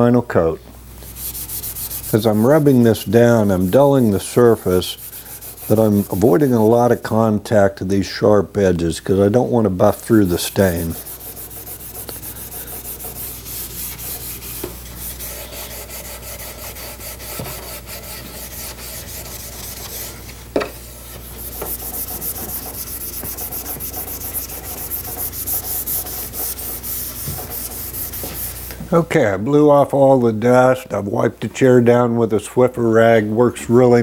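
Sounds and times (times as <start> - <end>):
abrasive pad rubbing wood: 1.0 - 7.2, 9.1 - 29.0.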